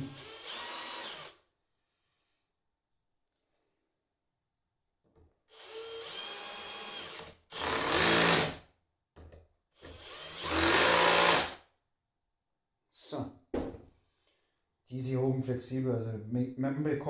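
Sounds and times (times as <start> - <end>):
electric drill-driver running: 0.0 - 1.4, 5.5 - 8.5, 9.9 - 11.6.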